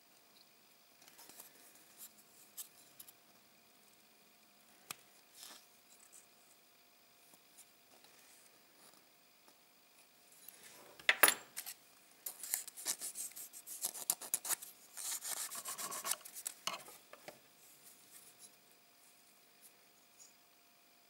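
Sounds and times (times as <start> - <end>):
sharp scrape: 12.4 - 16.5
sandpaper rubbing on plastic: 12.5 - 16.5.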